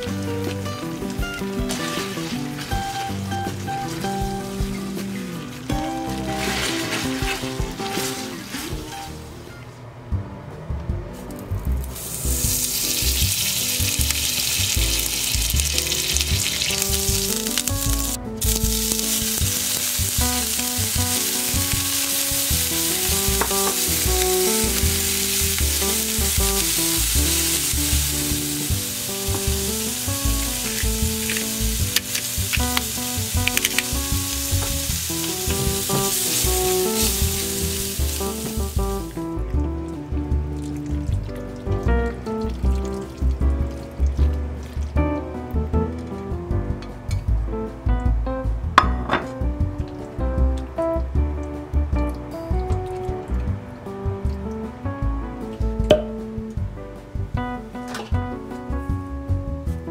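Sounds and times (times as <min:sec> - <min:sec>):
background music with beat: 0:00.0 - 0:09.2, 0:10.1 - 0:59.9
shrimp sizzling in pan: 0:00.0 - 0:09.2, 0:11.9 - 0:39.2.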